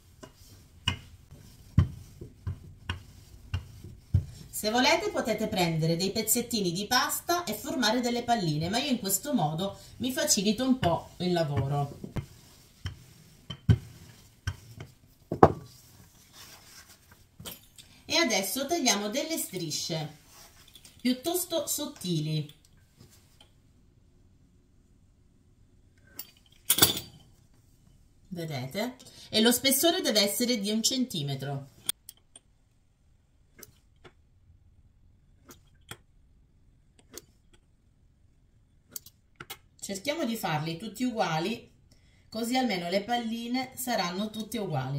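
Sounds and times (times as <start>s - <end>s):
rolling pin knocking on worktop: 15.3s - 15.7s.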